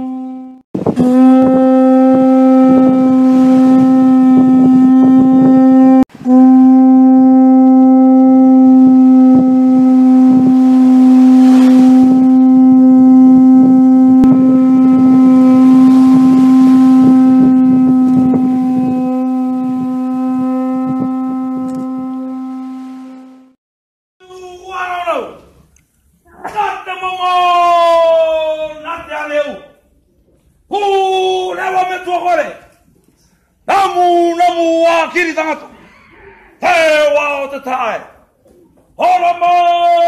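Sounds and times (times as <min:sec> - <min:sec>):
long blown horn note: 0:00.0 - 0:23.6.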